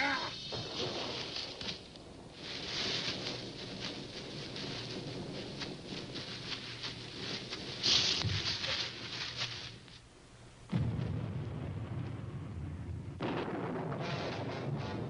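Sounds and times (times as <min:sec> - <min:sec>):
scuffling in dry leaves: 0:00.0 - 0:10.2.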